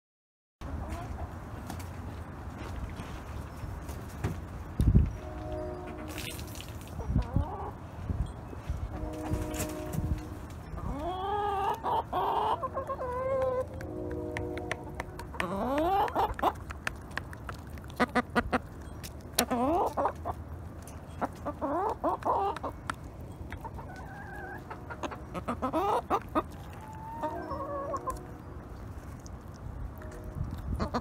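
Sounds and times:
hens clucking: 0:07.0 - 0:07.8, 0:10.7 - 0:20.5, 0:21.1 - 0:28.5, 0:30.6 - 0:31.0.

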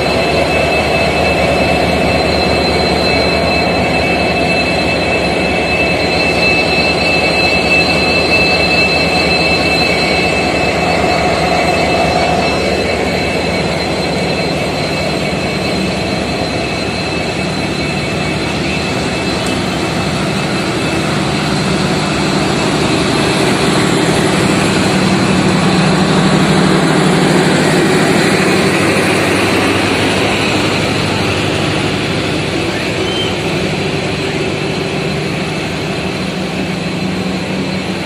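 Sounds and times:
train wheels rumbling on rails: 0:00.0 - 0:38.0.

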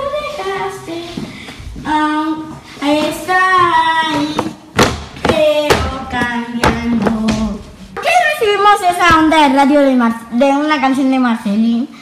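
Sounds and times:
sharp knocks: 0:04.1 - 0:07.6.

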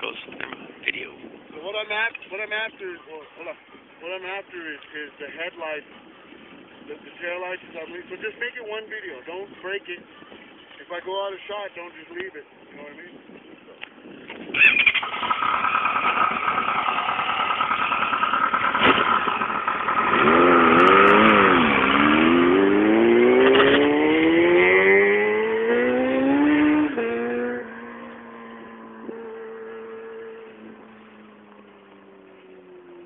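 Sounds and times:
motorcycle engine revving: 0:14.5 - 0:33.0.

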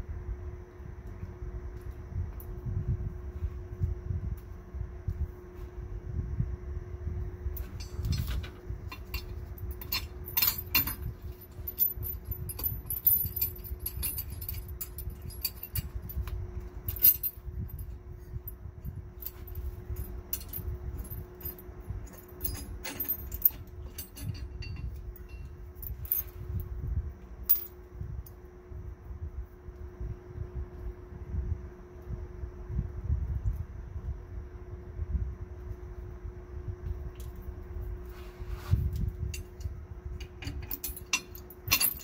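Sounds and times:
steady low hum: 0:00.0 - 0:42.0
metallic clinks of bolts: 0:07.6 - 0:18.0, 0:19.2 - 0:26.4, 0:27.5 - 0:27.8, 0:39.3 - 0:42.0.

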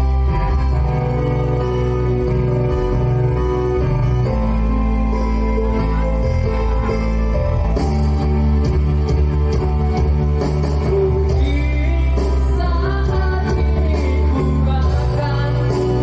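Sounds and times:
backing music with bass and beat: 0:00.0 - 0:16.0
man singing into a microphone: 0:10.8 - 0:16.0.

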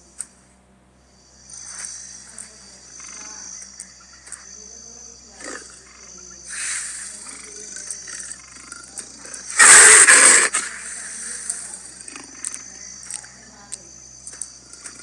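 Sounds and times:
leopard growls: 0:05.3 - 0:13.4.

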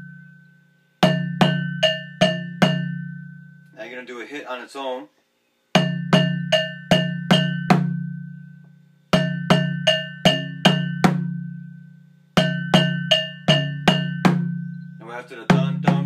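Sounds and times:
bell strikes: 0:05.8 - 0:08.3
low drum booms: 0:15.5 - 0:16.0.

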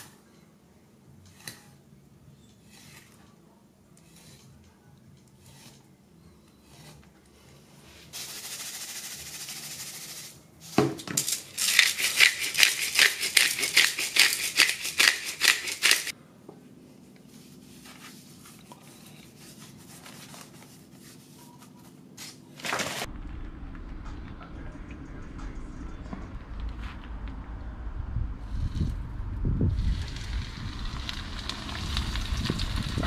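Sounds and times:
seasoning shaker rattling: 0:08.2 - 0:10.3, 0:11.2 - 0:16.1
low rumble: 0:23.1 - 0:33.0.

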